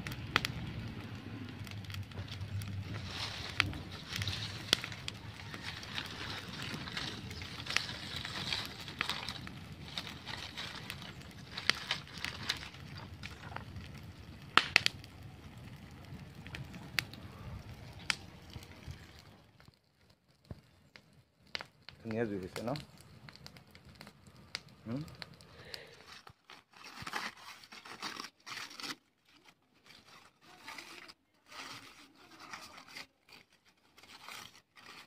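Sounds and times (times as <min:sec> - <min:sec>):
sharp pops of fire: 0:00.0 - 0:26.4
fire crackling: 0:00.0 - 0:35.0.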